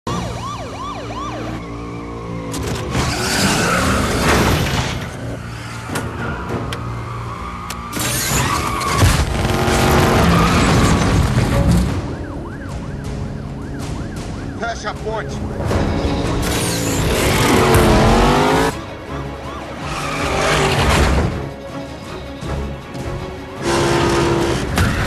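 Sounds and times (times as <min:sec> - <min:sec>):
police sirens wailing: 0:00.0 - 0:21.3
background music: 0:00.1 - 0:25.0
tyre and road noise: 0:01.0 - 0:25.0
car engines revving hard: 0:09.2 - 0:11.0, 0:16.1 - 0:18.8, 0:23.6 - 0:25.0.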